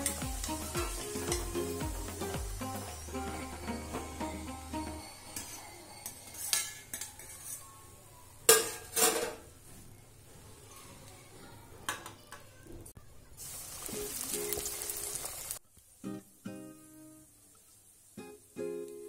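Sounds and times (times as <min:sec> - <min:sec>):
hot oil sizzling: 0:00.0 - 0:07.4, 0:13.3 - 0:19.0
metal spoon clinking on pan: 0:05.0 - 0:07.7.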